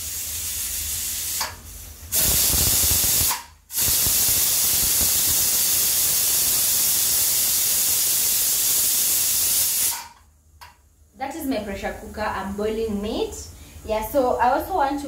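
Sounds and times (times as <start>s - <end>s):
pressure cooker steam hissing: 0.0s - 10.2s.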